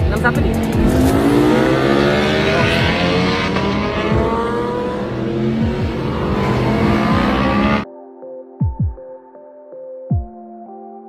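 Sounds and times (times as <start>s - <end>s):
motorcycle engines accelerating: 0.0s - 7.8s.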